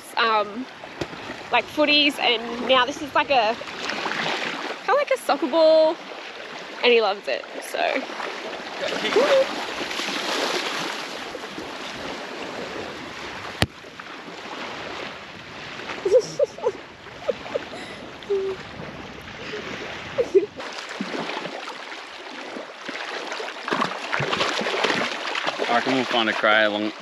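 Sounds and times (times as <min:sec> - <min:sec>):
small waves splashing: 0:00.0 - 0:27.0
high squeaky tones: 0:16.1 - 0:18.6.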